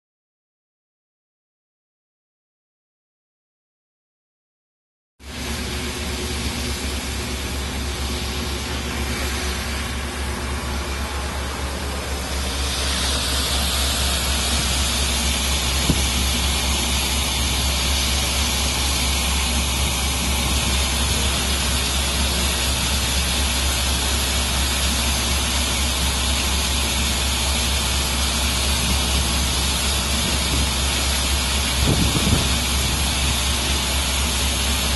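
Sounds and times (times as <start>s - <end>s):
boat engine rumble: 5.3s - 34.9s
rushing water and wind: 8.4s - 34.8s.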